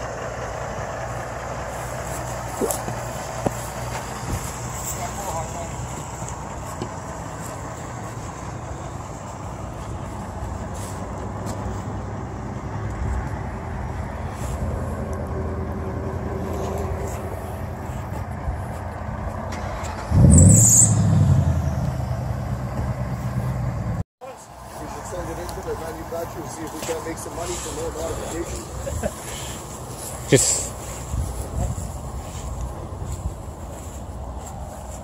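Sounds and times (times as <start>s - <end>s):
car engine running: 0.0s - 24.0s
engine revving: 19.3s - 24.0s.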